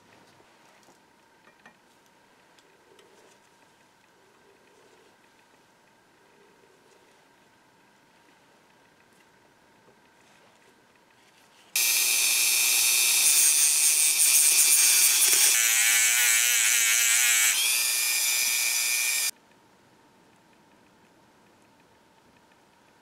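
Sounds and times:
rotary tool grinding metal: 11.8s - 19.3s.

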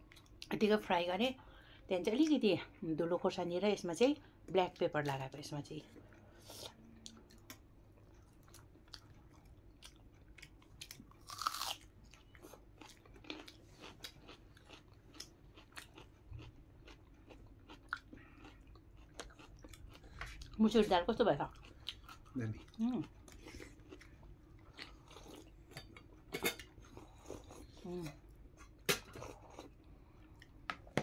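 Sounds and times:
person chewing crunchy food: 6.1s - 20.6s, 21.5s - 27.8s, 28.7s - 30.6s.

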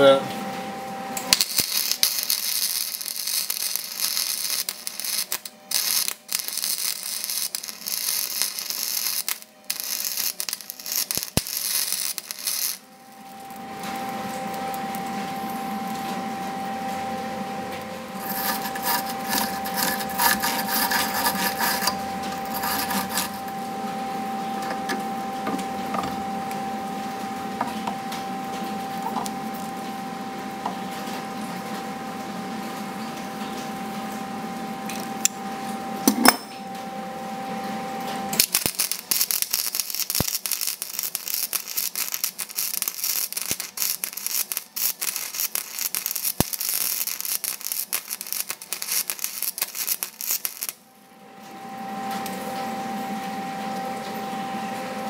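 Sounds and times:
steady hum: 0.0s - 31.4s
welder arc crackling and sputtering: 1.2s - 27.1s, 38.3s - 50.8s.

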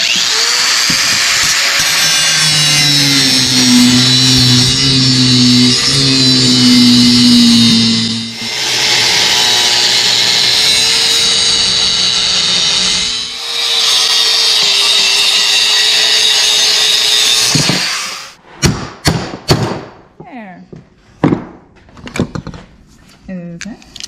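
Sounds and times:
angle grinder cutting steel: 0.0s - 18.4s.

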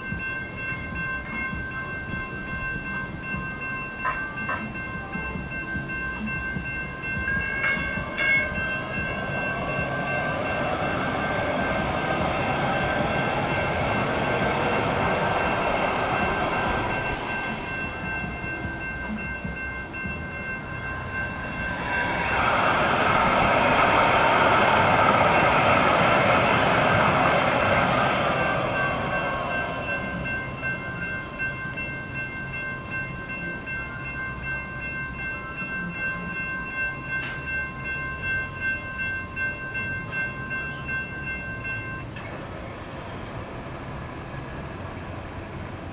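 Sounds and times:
railroad crossing bells ringing: 0.0s - 45.9s
train rushing along rails: 0.0s - 45.9s.

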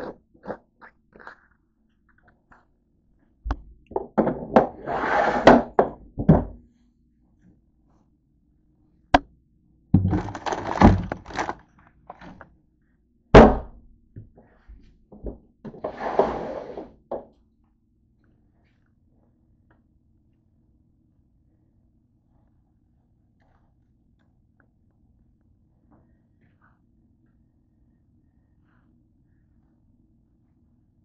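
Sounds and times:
knocks and thunks: 10.0s - 11.6s, 13.4s - 13.8s
rummaging and rustling: 10.0s - 12.4s.

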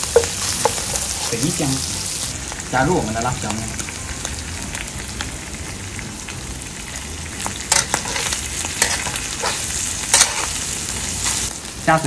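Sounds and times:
metal spatula scraping wok: 0.0s - 1.9s, 7.6s - 11.5s
meat sizzling in oil: 0.0s - 12.0s.

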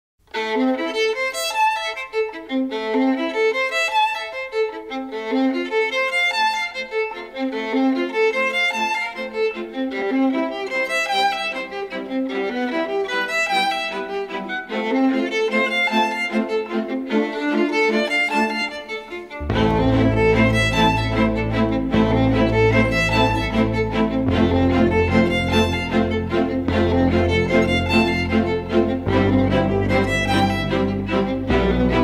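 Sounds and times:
violin melody: 0.2s - 32.0s.

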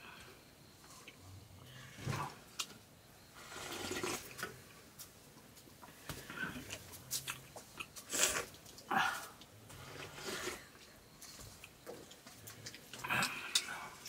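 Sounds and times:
slurping liquid from steel bowl: 3.4s - 4.5s, 9.8s - 10.8s.

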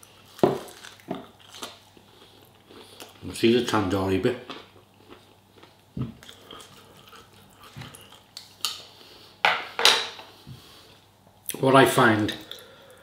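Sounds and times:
quiet chewing: 0.0s - 3.2s, 4.4s - 9.3s
tableware clinking on plate: 9.5s - 10.2s.

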